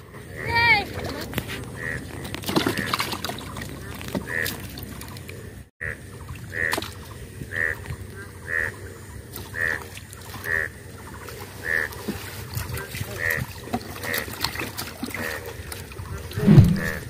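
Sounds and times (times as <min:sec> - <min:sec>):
low steady rumble: 0:16.4 - 0:17.0.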